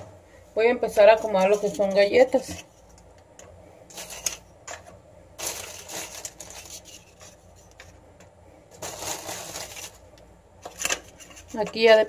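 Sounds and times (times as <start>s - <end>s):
plastic wrapper crinkling: 5.4s - 7.9s, 8.7s - 11.6s.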